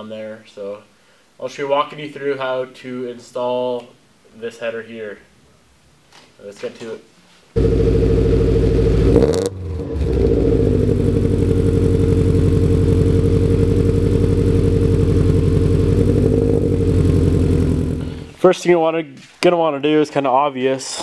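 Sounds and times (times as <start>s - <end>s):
car engine idling with throttle blip: 7.6s - 18.4s.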